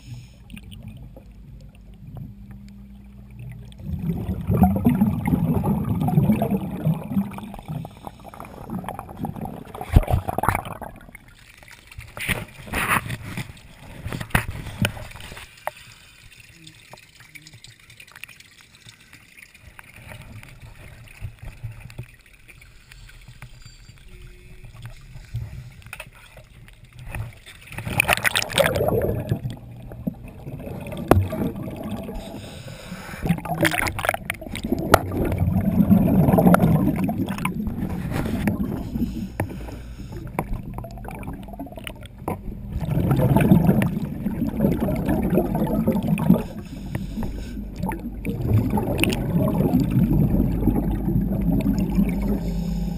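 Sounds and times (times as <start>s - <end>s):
air bubbles gurgling underwater: 0.0s - 15.2s, 26.9s - 32.5s, 33.2s - 52.9s.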